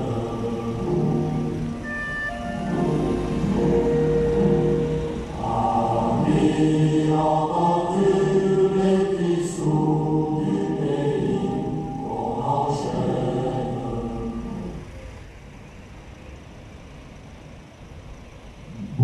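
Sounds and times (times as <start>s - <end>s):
choir singing held notes: 0.0s - 15.2s.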